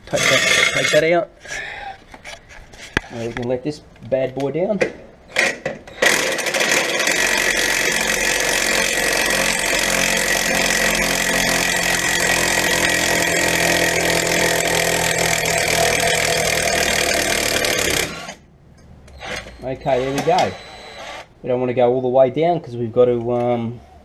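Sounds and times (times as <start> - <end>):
cordless drill running: 5.9 - 18.4, 19.2 - 21.3.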